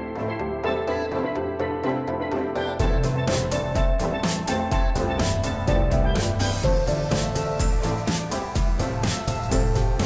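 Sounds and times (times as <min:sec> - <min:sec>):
light steady beat: 0:02.8 - 0:10.0.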